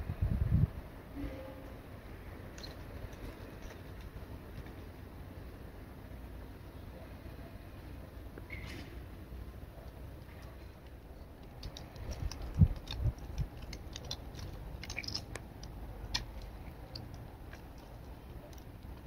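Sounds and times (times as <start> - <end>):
cat claws scratching bark: 9.8 - 19.0.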